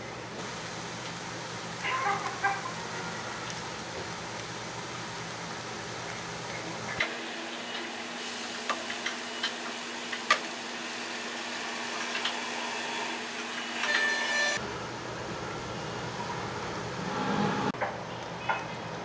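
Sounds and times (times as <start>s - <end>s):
vegetables sizzling in oil: 0.4s - 14.0s.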